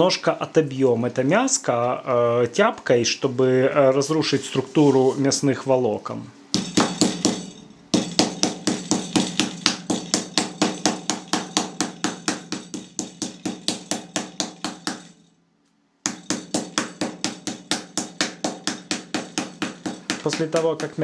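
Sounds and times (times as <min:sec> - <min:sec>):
meat mallet pounding beef: 0:06.5 - 0:15.3, 0:16.0 - 0:21.0.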